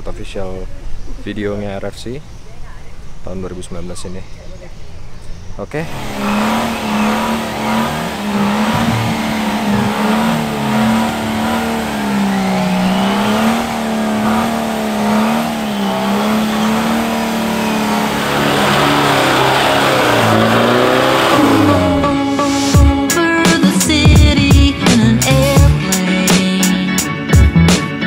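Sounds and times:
truck engine revving: 0:05.8 - 0:23.1.

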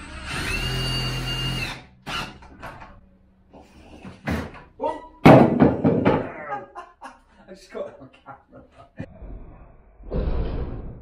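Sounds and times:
cordless drill whirring: 0:00.0 - 0:02.4.

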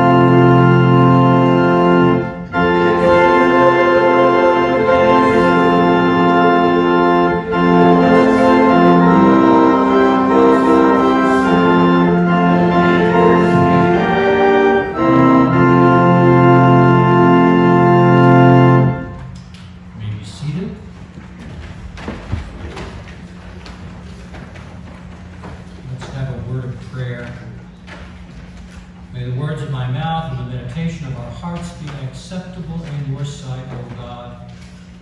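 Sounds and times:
church organ chords: 0:00.0 - 0:21.2.

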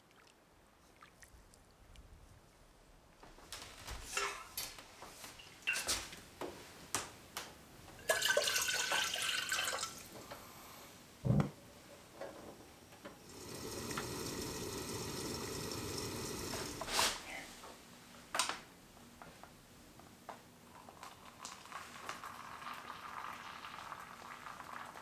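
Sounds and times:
water pouring into kettle: 0:08.0 - 0:10.1, 0:13.2 - 0:17.0, 0:20.8 - 0:25.0
gas burner hissing: 0:13.2 - 0:17.4.

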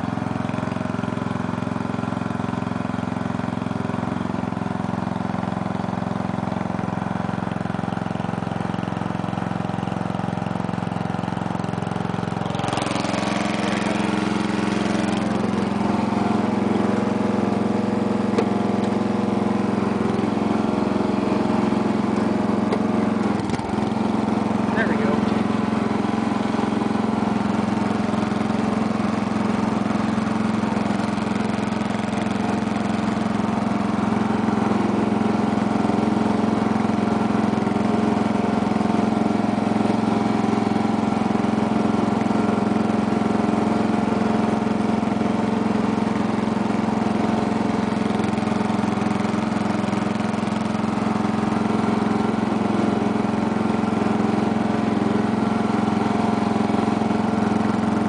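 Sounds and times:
lawn tractor engine running: 0:00.0 - 0:58.0.

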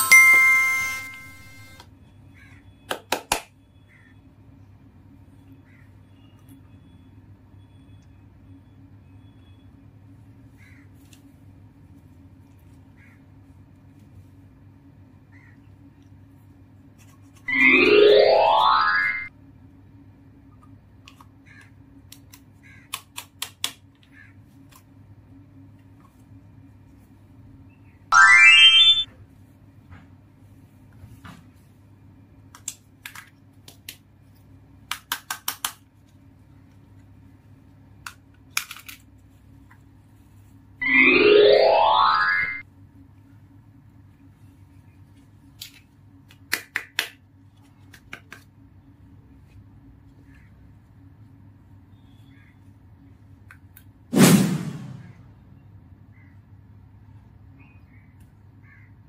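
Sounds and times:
plastic toy parts clicking: 0:38.0 - 0:39.0.

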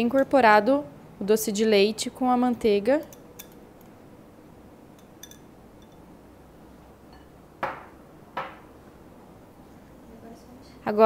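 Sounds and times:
whisk clinking against glass bowl: 0:03.0 - 0:03.9, 0:05.0 - 0:06.1.

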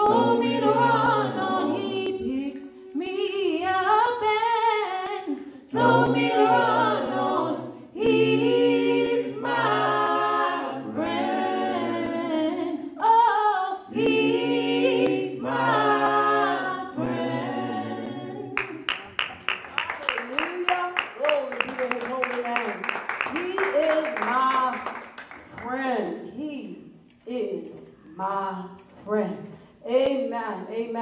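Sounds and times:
vocal group singing a cappella: 0:00.0 - 0:18.9
rhythmic hand clapping: 0:13.9 - 0:16.4, 0:17.0 - 0:26.2.

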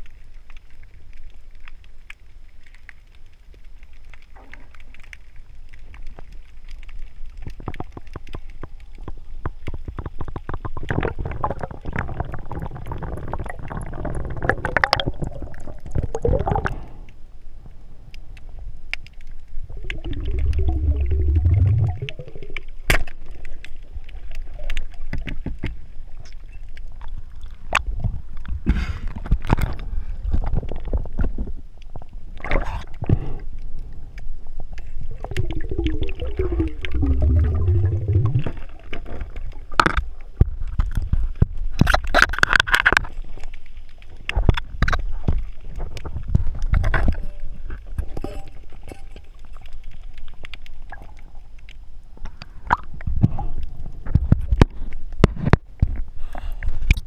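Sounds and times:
underwater bubble bursts: 0:09.6 - 0:17.1, 0:19.1 - 0:26.2, 0:32.3 - 0:41.1, 0:52.6 - 0:55.3.

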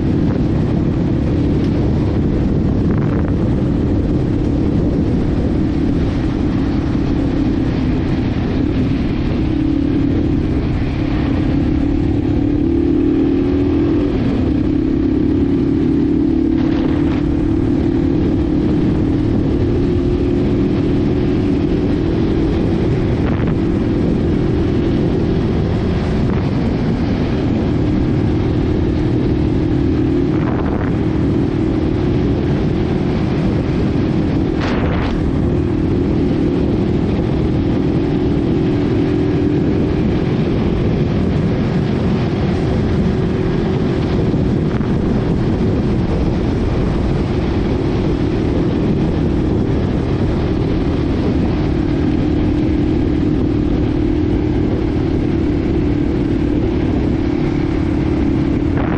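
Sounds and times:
motorcycle engine cruising: 0:00.0 - 0:58.9
wind buffeting microphone: 0:00.0 - 0:58.9.

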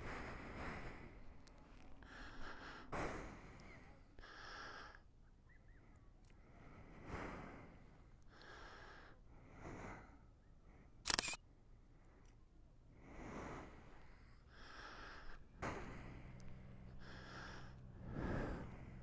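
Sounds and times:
person breathing: 0:00.0 - 0:05.1, 0:05.7 - 0:12.3, 0:12.9 - 0:19.0
phone camera shutter click: 0:11.1 - 0:11.4.

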